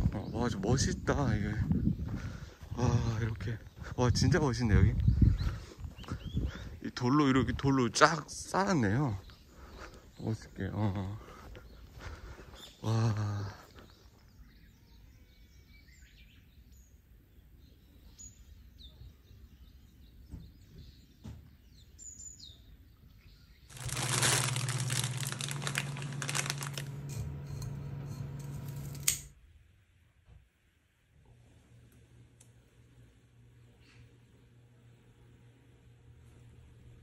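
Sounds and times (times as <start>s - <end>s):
birds chirping: 0.0s - 27.1s.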